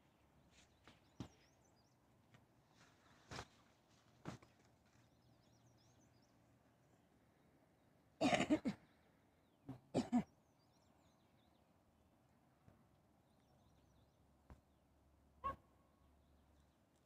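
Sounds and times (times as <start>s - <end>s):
person coughing: 8.2s - 8.8s, 9.9s - 10.3s.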